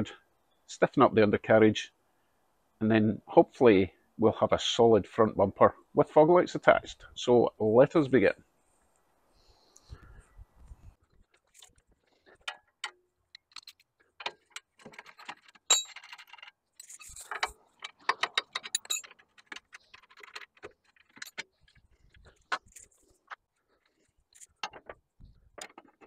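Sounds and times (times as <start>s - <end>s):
metal tools clinking: 13.4s - 21.8s.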